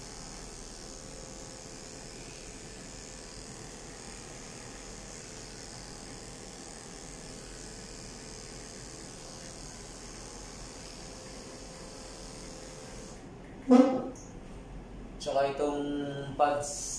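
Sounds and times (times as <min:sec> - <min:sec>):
electric clippers running: 0:00.0 - 0:13.3.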